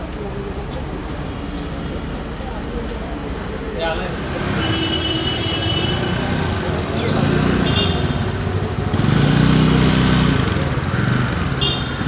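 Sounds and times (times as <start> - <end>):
people talking: 0.0 - 4.7
vehicle engines rumbling: 0.0 - 12.0.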